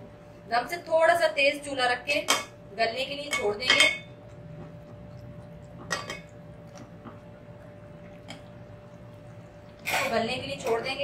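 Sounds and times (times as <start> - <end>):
steady low hum: 0.0 - 11.0
metal spoon clinking on pot: 3.3 - 4.1.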